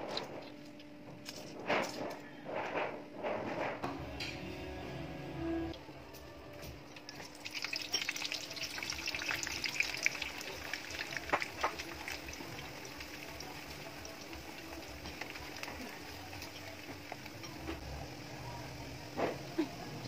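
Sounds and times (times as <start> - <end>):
tofu frying in oil: 7.0 - 20.0.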